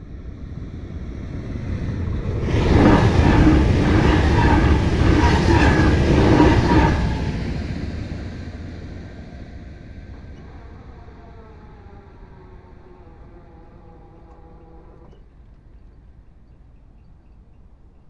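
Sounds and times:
train wheels and air rushing: 0:00.6 - 0:11.2.

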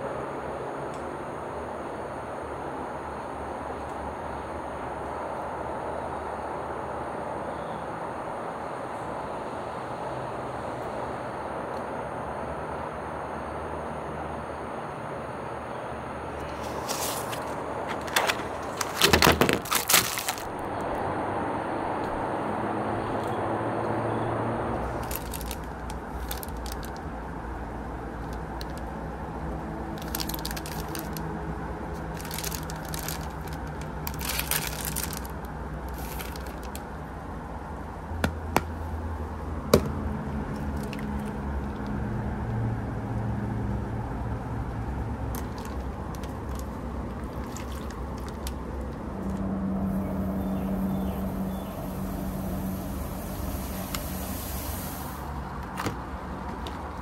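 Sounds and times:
plastic packaging crinkling: 0:16.5 - 0:20.7, 0:24.8 - 0:27.1, 0:28.2 - 0:28.9, 0:30.0 - 0:36.9, 0:40.5 - 0:41.9, 0:45.3 - 0:49.0
fizzing hiss of heating pack: 0:51.7 - 0:55.5.

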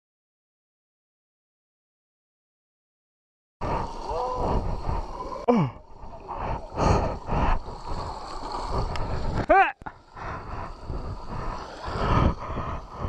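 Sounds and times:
person grunting: 0:05.5 - 0:05.8.

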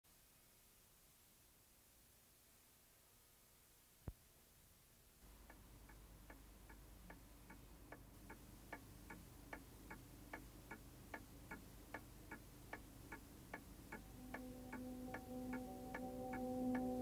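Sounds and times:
low steady hum: 0:00.1 - 0:17.0
clock ticking: 0:05.2 - 0:17.0.

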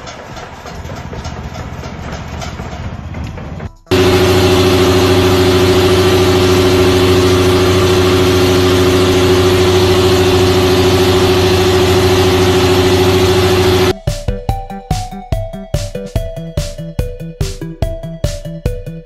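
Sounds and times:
milling machine hum: 0:01.0 - 0:14.0.

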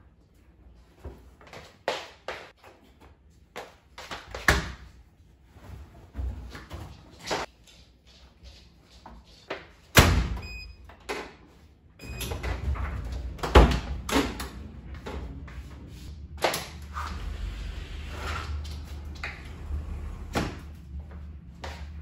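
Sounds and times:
low steady rumble: 0:12.1 - 0:22.0
sliding glass door scraping open: 0:16.8 - 0:20.9.

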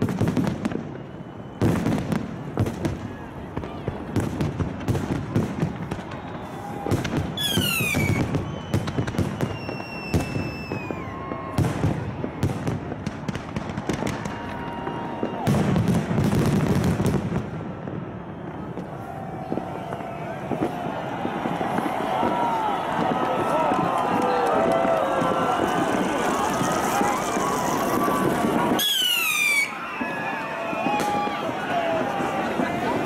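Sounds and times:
fireworks bangs and crackles: 0:00.0 - 0:33.0
fireworks whistles sliding down: 0:05.6 - 0:11.6, 0:18.2 - 0:32.8.

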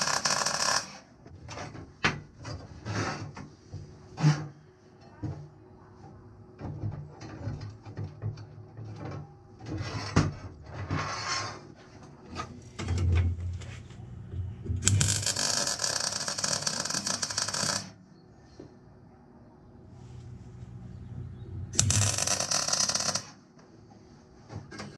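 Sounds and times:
arc welder crackling: 0:00.0 - 0:01.1, 0:14.7 - 0:18.0, 0:21.7 - 0:23.4.

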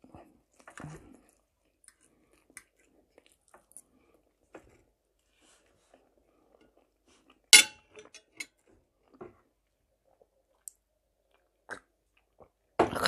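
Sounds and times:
faint chewing: 0:00.0 - 0:07.5
fork clinking on plate: 0:07.6 - 0:08.5.

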